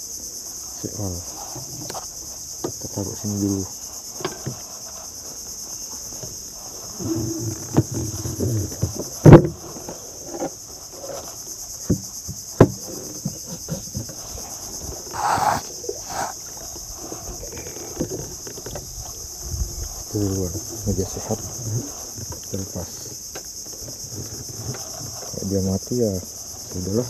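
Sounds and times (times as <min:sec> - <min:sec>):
insect chorus drone: 0:00.0 - 0:27.0
knocks against wooden boat: 0:07.0 - 0:09.6, 0:11.8 - 0:14.2.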